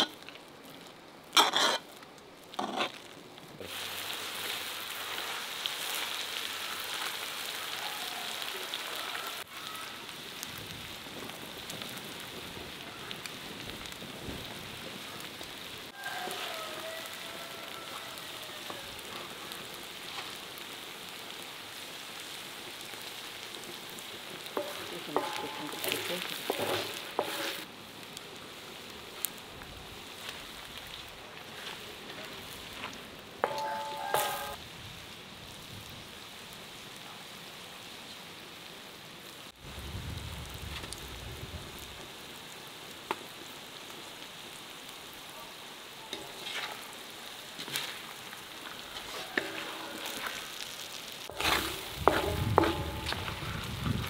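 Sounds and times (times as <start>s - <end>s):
meat and vegetables sizzling: 0.0s - 54.0s
scraping in a pan: 1.3s - 3.1s, 24.3s - 27.7s, 31.4s - 34.6s, 46.1s - 54.0s
spoon knocking in a pot: 33.4s - 34.5s.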